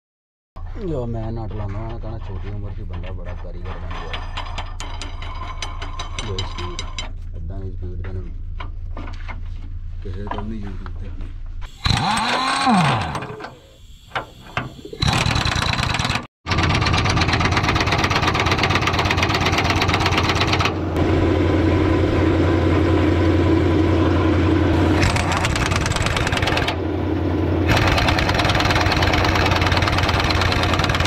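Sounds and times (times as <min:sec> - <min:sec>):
metal clatter: 0:01.6 - 0:07.3
pneumatic impact wrench hammering: 0:11.7 - 0:20.8, 0:24.8 - 0:26.8, 0:27.7 - 0:31.0.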